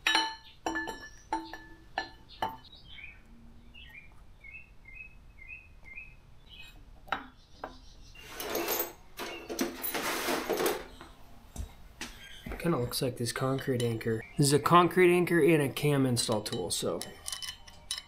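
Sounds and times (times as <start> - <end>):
high bird chirps: 0.4 - 8.4, 12.1 - 12.6, 13.8 - 15.0
metal clinks: 16.2 - 18.0.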